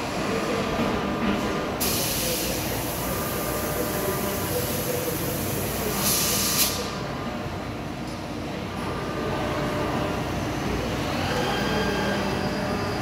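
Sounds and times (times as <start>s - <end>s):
machining center running: 0.0s - 13.0s
coolant spraying hiss: 1.8s - 7.0s.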